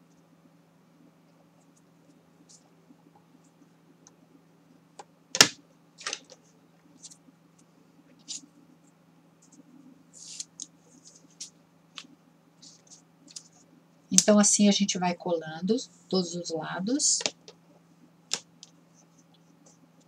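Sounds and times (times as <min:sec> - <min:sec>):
faint steady hum: 0:00.0 - 0:20.0
paper rustling and tapping: 0:18.3 - 0:18.7.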